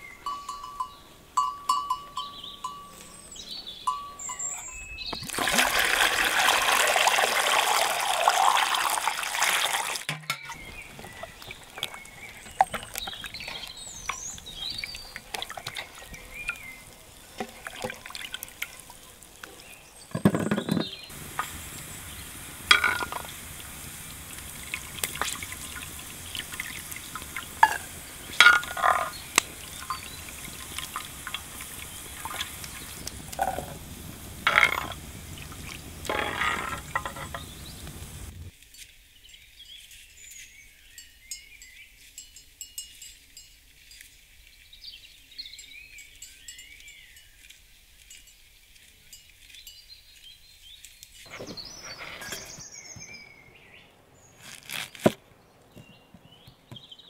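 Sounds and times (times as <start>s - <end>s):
water poured into metal bowl: 5.2s - 10.1s, 10.9s - 19.2s, 21.1s - 37.9s
fat sizzling: 5.2s - 20.0s, 21.0s - 38.5s.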